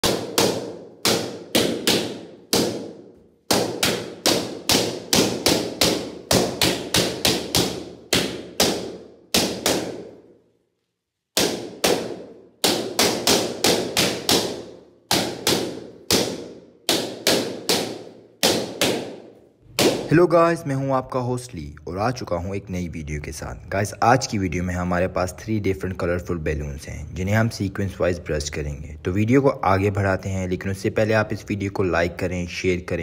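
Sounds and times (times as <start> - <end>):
balloons bursting: 11.2 - 20.3.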